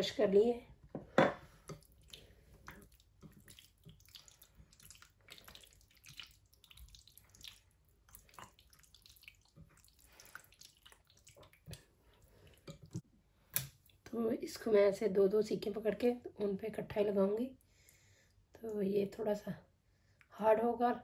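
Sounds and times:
hands squelching in marinade: 1.6 - 13.0.

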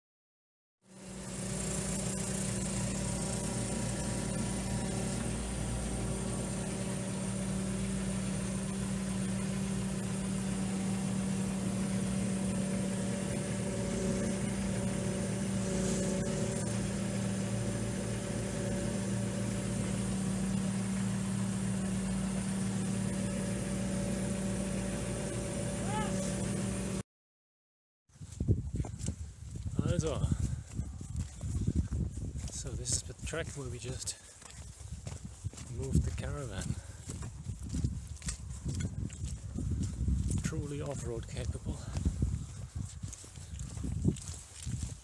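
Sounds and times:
diesel engine running at low revs: 0.9 - 27.0, 29.4 - 45.0.

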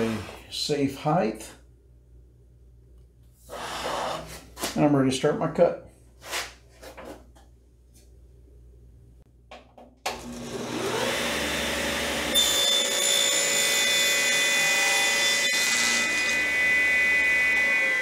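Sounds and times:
table saw cutting board: 0.0 - 0.4, 3.5 - 4.4, 10.1 - 18.0
table saw motor whining: 10.1 - 18.0.

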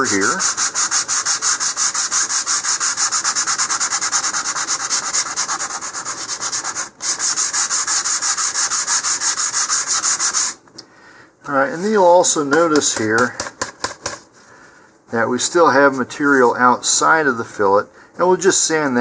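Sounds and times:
sandpaper sanding wood filler: 0.0 - 10.6.

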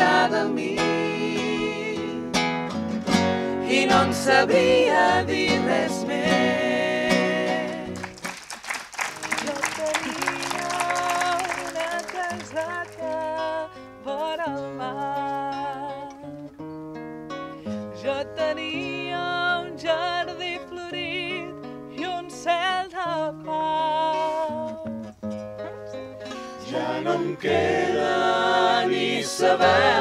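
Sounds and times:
group singing in harmony: 0.0 - 2.3, 3.4 - 8.2, 26.3 - 30.0.

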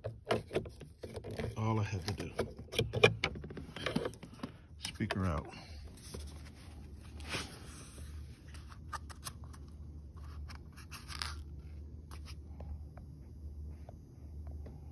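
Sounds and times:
speaker handling clicks and rustles: 0.0 - 7.0
low steady hum: 0.0 - 14.9.

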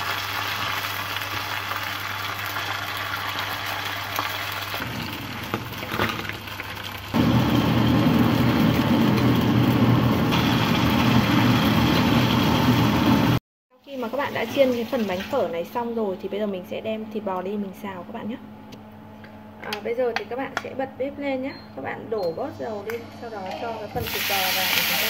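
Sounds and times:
hot oil sizzling: 0.0 - 15.6, 24.0 - 25.0.

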